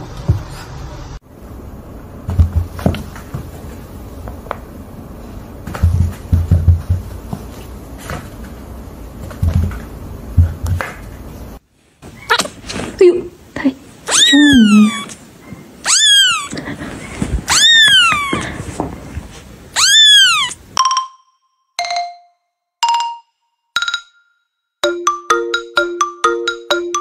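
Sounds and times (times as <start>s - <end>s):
kitten mewing: 12.2s - 12.6s, 14.1s - 15.2s, 15.8s - 16.7s, 17.5s - 18.6s, 19.8s - 20.6s.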